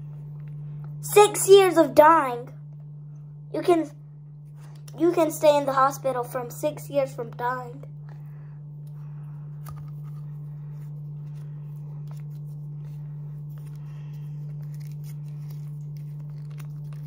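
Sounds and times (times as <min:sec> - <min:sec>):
steady low hum: 0:00.0 - 0:17.0
foil sachet crinkling: 0:13.4 - 0:17.0.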